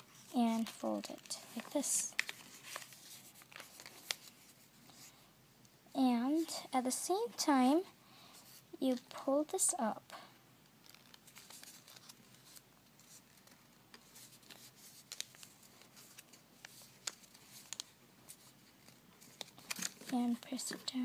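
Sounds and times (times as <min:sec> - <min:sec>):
paper rustling and crinkling: 0:00.0 - 0:05.1, 0:10.8 - 0:21.0.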